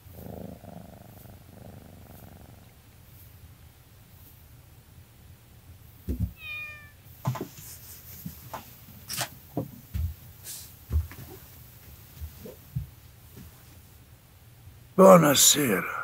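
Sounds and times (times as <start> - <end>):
cat meowing: 6.3 - 7.0.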